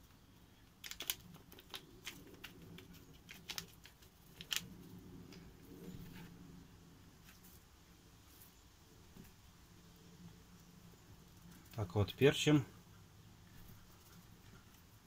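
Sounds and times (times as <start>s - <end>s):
paper sachet crinkling and tearing: 0.8s - 4.7s.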